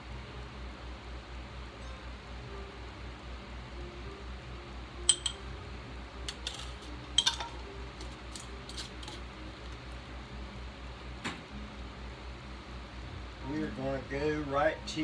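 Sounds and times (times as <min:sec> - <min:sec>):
glass jars clinking: 0:05.1 - 0:05.4, 0:06.4 - 0:07.6.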